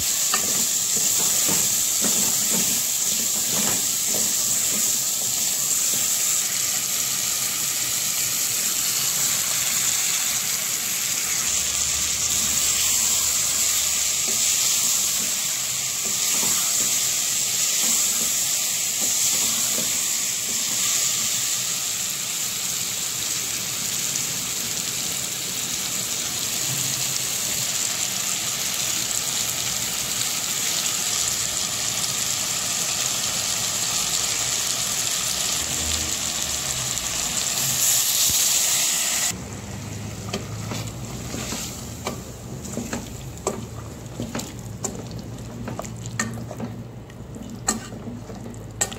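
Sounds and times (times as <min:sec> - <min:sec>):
food sizzling in hot oil: 0:00.0 - 0:48.9
wooden spoon stirring food: 0:40.2 - 0:48.9.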